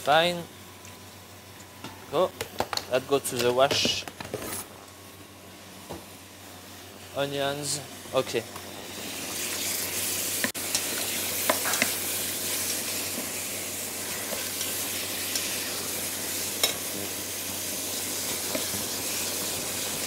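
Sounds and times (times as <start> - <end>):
meat sizzling in a pot: 5.0 - 20.0.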